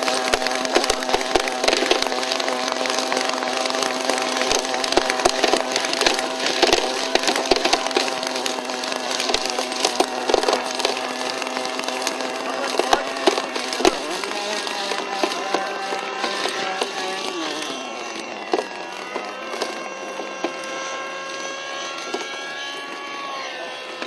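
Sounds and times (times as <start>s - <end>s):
rc helicopter engine running: 0.0s - 24.0s.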